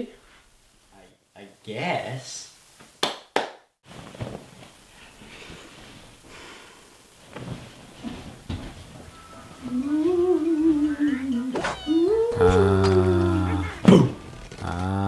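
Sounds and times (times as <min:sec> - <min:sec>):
faint rustling: 0:03.8 - 0:15.0
person humming a wavering moan: 0:09.6 - 0:15.0.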